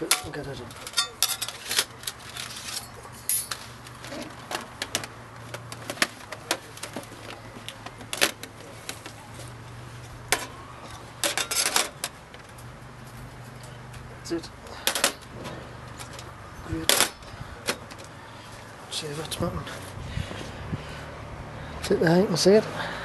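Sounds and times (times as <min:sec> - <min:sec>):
metal barbecue panels clattering: 0:00.0 - 0:02.0.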